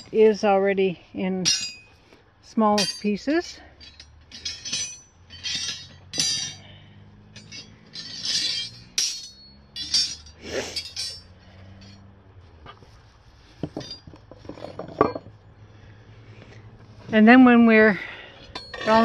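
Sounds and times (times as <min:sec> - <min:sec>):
rebar clinking against steel pipe: 0:01.4 - 0:02.0, 0:02.8 - 0:12.1, 0:18.2 - 0:19.0.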